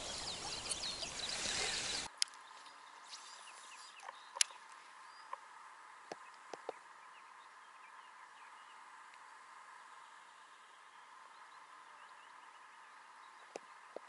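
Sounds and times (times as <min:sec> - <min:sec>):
outdoor hiss: 0:00.0 - 0:02.2
faint birdsong: 0:00.0 - 0:14.0.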